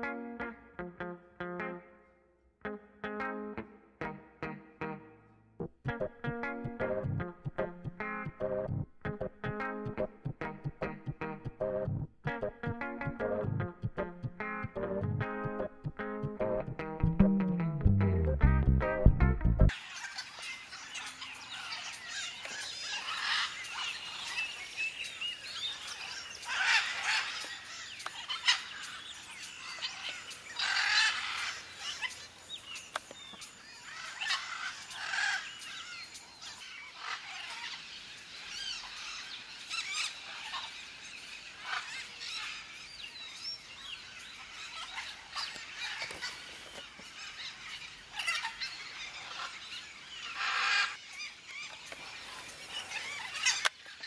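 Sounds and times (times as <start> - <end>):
parrots calling: 19.8 - 24.4, 25.8 - 29.0, 29.6 - 32.2, 33.9 - 36.0, 36.6 - 37.8, 38.5 - 40.8, 41.6 - 42.6, 44.6 - 54.0.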